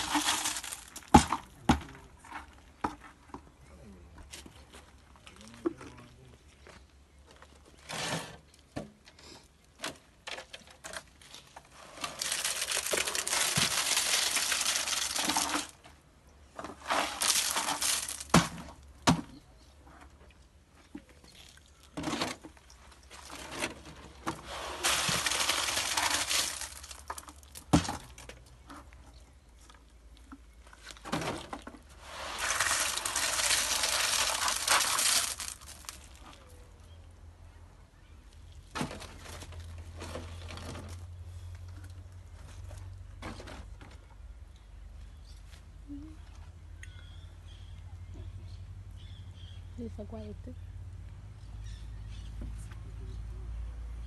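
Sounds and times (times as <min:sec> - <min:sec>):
gritty concrete mix rushing: 0:00.0 - 0:03.1, 0:11.2 - 0:15.8, 0:16.6 - 0:18.8, 0:21.8 - 0:28.3, 0:31.3 - 0:36.6.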